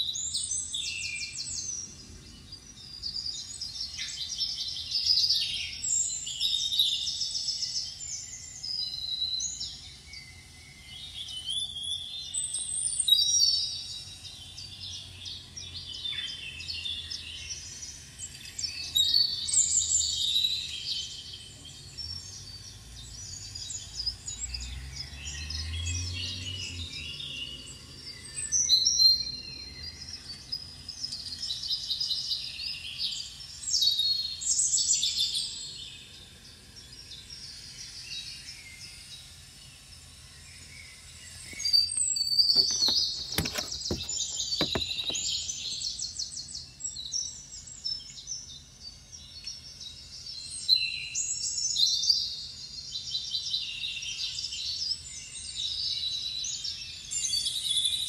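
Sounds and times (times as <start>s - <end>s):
birds chirping and twittering: 40.5s - 47.3s.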